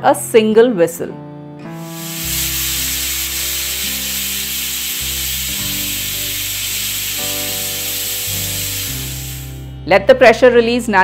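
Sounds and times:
background music: 1.5s - 11.0s
pressure cooker steam hissing: 1.8s - 9.6s.

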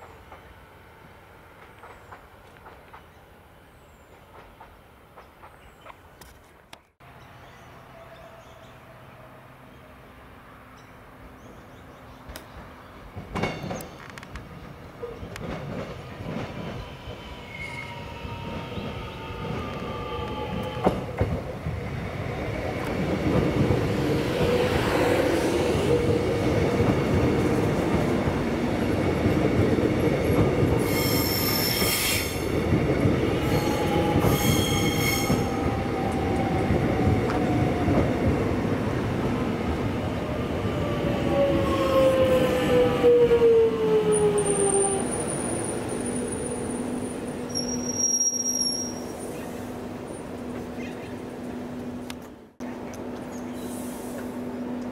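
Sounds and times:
electric train passing: 12.2s - 54.9s
wheels squealing on track: 17.2s - 21.0s, 30.8s - 32.4s, 33.4s - 35.5s, 44.6s - 49.6s.

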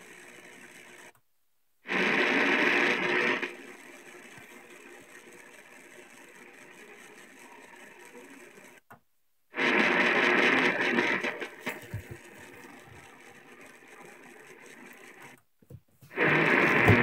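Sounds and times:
faint radio hiss: 0.0s - 17.0s
loud radio static: 1.9s - 8.8s, 9.5s - 15.4s, 16.1s - 17.0s.

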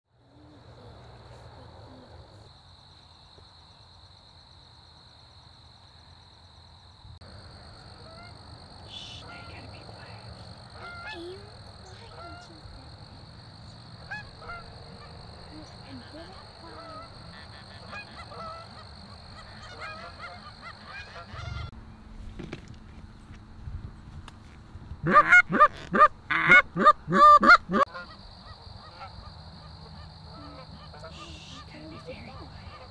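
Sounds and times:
geese honking: 7.8s - 21.7s, 25.0s - 32.9s.

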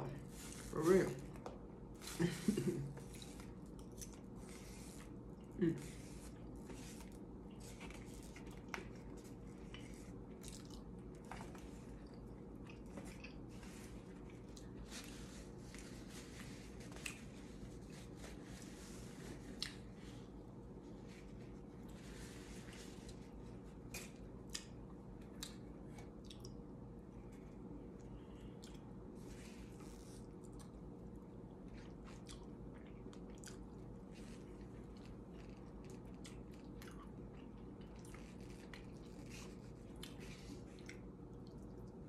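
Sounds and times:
low steady hum: 0.0s - 42.0s
faint chewing: 0.3s - 20.3s, 21.0s - 42.0s.

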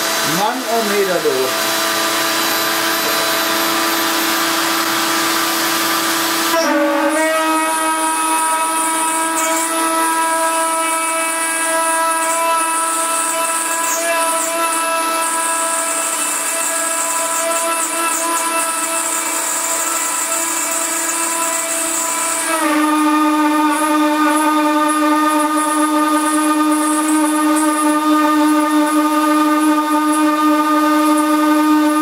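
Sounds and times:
router spindle milling metal: 0.0s - 6.6s, 8.1s - 22.5s.

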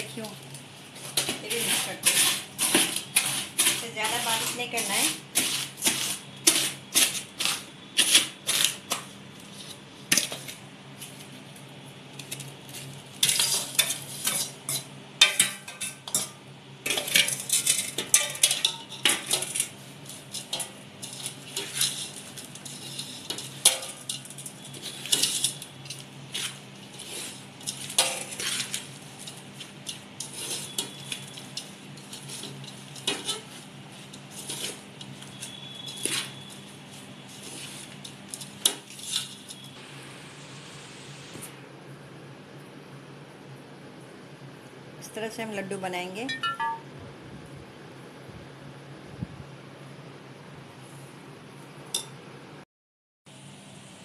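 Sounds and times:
spoon scraping steel pot: 1.1s - 8.8s, 20.4s - 39.6s.

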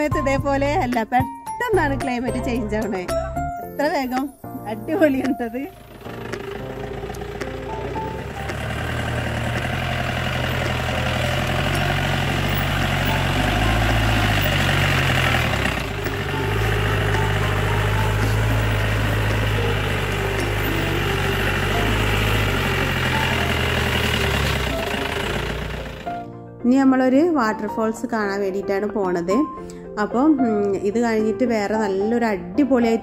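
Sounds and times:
car engine running: 5.0s - 26.3s.

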